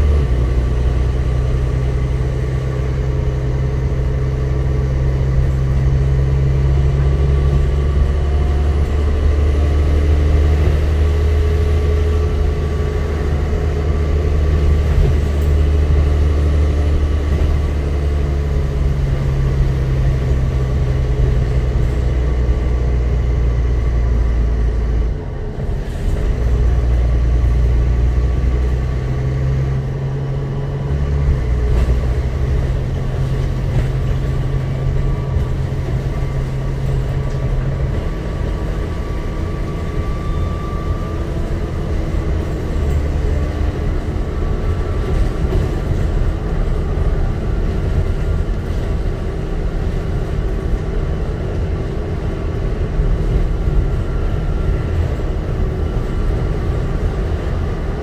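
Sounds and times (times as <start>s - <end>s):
bus engine drone: 0.0s - 58.0s
road noise: 0.0s - 58.0s.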